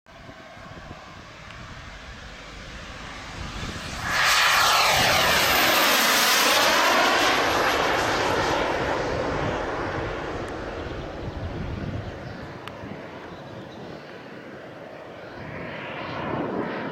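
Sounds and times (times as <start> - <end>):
jet turbine whooshing and whining: 0.1 - 16.9.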